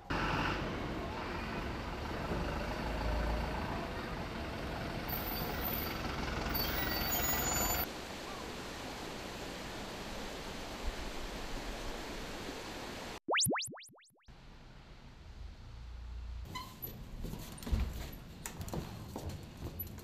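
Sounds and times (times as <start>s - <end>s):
truck engine and tyres: 0.0s - 7.9s
brief high-pitched tones: 13.3s - 14.2s.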